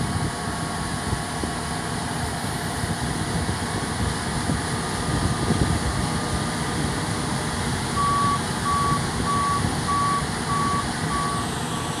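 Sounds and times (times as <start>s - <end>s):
combine harvester rumbling: 0.0s - 12.0s
electronic warning beeper: 8.0s - 11.5s.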